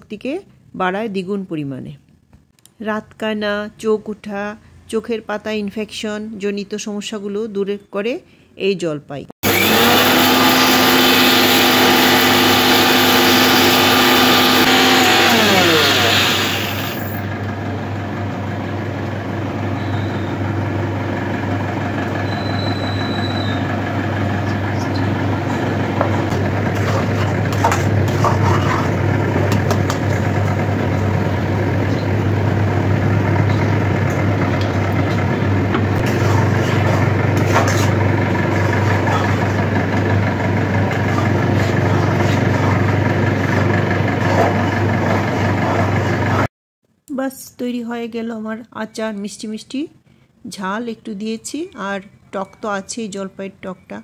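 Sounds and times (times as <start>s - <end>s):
mixer grinder motor running: 9.4s - 46.5s.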